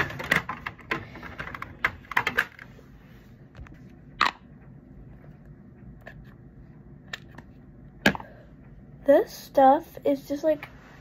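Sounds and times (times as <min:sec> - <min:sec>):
plastic bottles clicking and knocking: 0:00.0 - 0:02.6.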